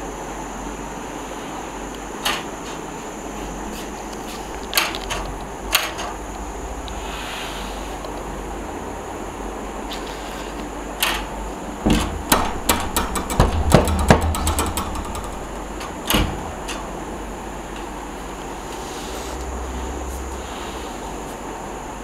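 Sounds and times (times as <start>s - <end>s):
sliding door bolt knocking and rattling: 4.7s - 6.2s, 11.0s - 18.0s.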